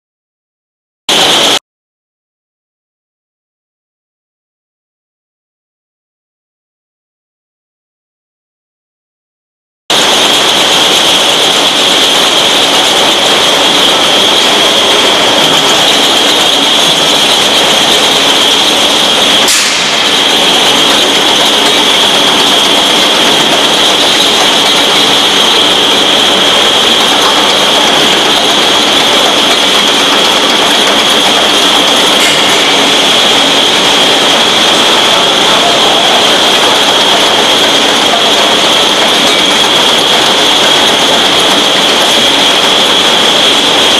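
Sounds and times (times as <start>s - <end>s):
high machine whine: 1.1s - 1.6s, 9.9s - 43.9s
machinery mechanical din: 9.9s - 43.9s.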